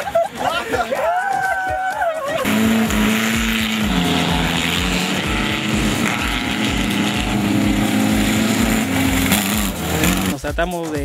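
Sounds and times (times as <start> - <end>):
race car engine running hard: 2.4 - 10.4.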